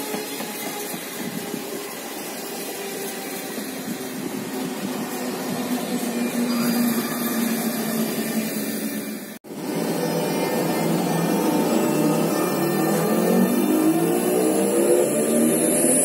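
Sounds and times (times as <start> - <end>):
train wheels rushing on rail: 0.0 - 16.0.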